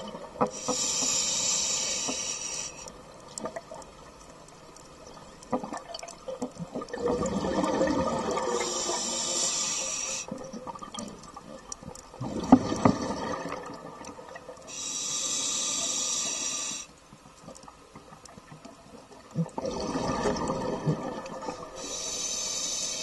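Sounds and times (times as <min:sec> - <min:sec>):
scuba regulator bubbles burbling: 0:05.0 - 0:09.1, 0:10.4 - 0:14.6, 0:19.2 - 0:21.8.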